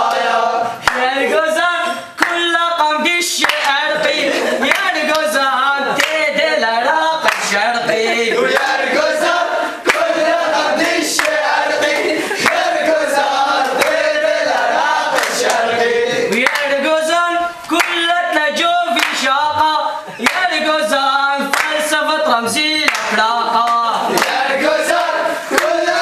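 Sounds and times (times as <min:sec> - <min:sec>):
sharp hand claps: 0:00.0 - 0:01.1, 0:02.2 - 0:02.6, 0:03.4 - 0:04.0, 0:04.6 - 0:05.3, 0:06.0 - 0:06.3, 0:07.2 - 0:07.6, 0:09.8 - 0:12.8, 0:13.6 - 0:15.7, 0:16.3 - 0:16.8, 0:17.6 - 0:18.2, 0:19.0 - 0:19.4, 0:20.2 - 0:20.7, 0:21.4 - 0:25.8
men singing in unison: 0:00.0 - 0:26.0.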